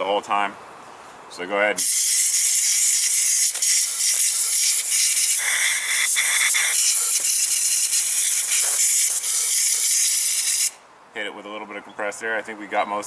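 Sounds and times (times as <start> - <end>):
compressed air spraying: 1.8 - 10.8.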